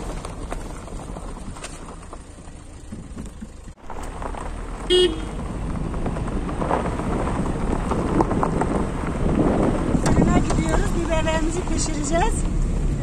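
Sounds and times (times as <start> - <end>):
vehicle rumble: 0.0 - 13.0
short car horn toot: 4.8 - 5.4.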